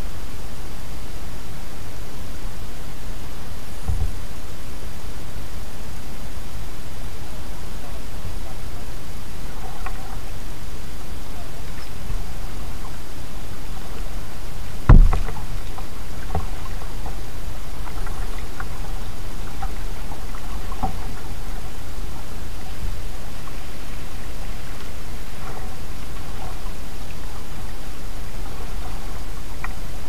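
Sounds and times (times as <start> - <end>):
steady hiss: 0.0 - 30.0
water dripping off paddle: 14.7 - 29.9
loud thump: 14.9 - 15.4.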